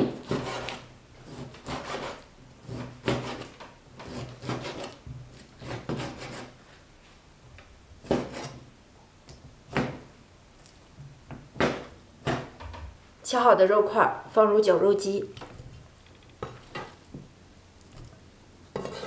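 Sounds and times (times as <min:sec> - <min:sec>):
cleaver chopping on wooden board: 0:02.7 - 0:03.5.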